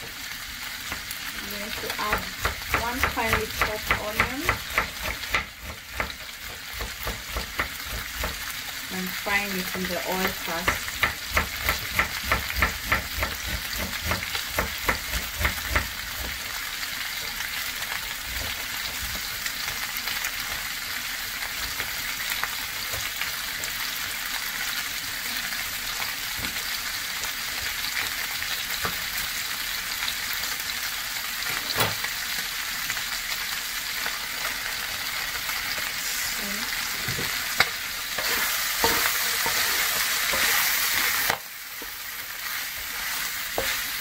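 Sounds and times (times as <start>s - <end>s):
meat sizzling in a pan: 0.0s - 44.0s
wooden spatula knocking on pan: 2.0s - 8.4s, 9.6s - 16.4s.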